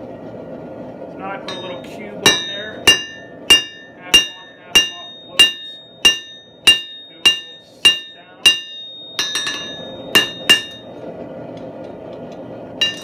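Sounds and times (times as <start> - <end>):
hammer striking steel on anvil: 1.5 - 10.9.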